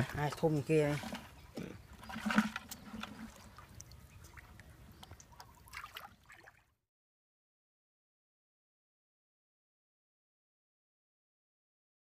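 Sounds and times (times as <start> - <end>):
small clicks and splashes: 0.8 - 6.6
water trickling and dripping: 1.9 - 6.7.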